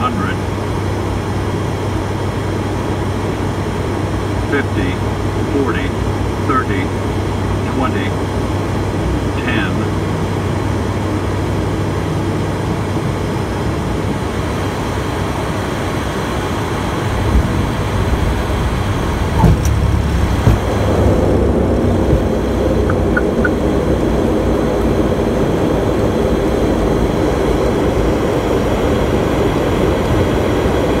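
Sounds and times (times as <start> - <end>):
turboprop engines: 0.0 - 31.0
wheels thumping on runway: 19.2 - 23.5
short high beeps: 22.9 - 23.6.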